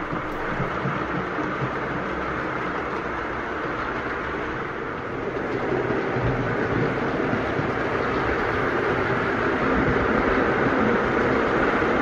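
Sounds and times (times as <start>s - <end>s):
model train wheels rolling: 0.0s - 5.9s.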